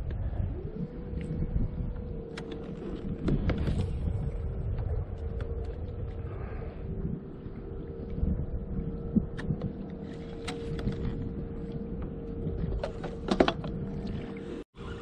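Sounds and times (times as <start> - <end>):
kayak motor humming: 0.0 - 15.0
low wind: 0.0 - 15.0
water rumble: 0.0 - 15.0.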